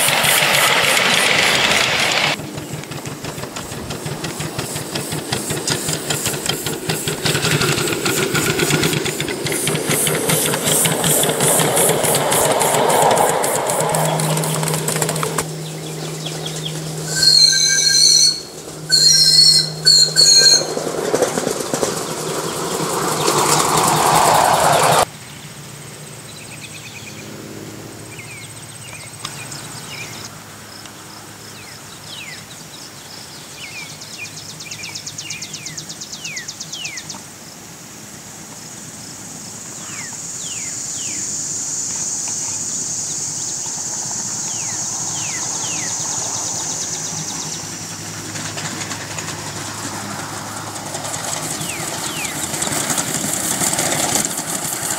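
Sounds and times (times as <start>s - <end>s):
steam locomotive whistle blasts: 13.4s - 20.9s
short falling chirps: 16.6s - 20.8s.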